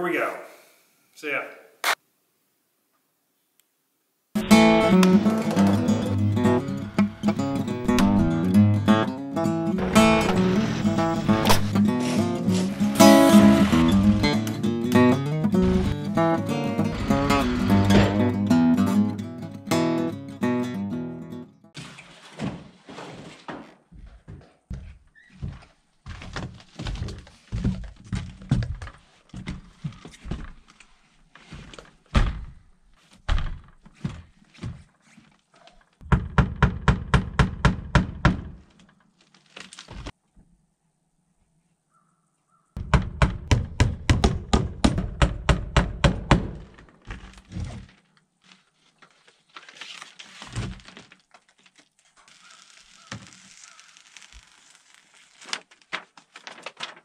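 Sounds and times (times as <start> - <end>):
tape peeling rustle: 9.9 - 14.6, 38.8 - 40.2, 46.8 - 57.0
knocks and thuds on window: 36.0 - 38.7, 42.8 - 46.7.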